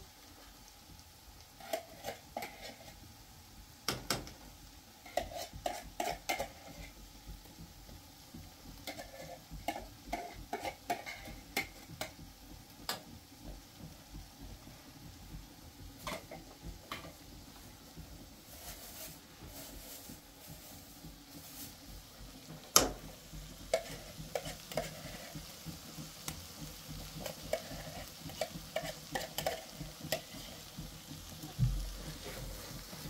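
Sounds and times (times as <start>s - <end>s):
frying sizzle: 0.0s - 33.0s
metal spoon scraping frying pan: 1.6s - 3.0s, 5.0s - 7.0s, 8.8s - 12.2s, 16.0s - 17.2s, 23.5s - 25.8s, 27.0s - 30.8s.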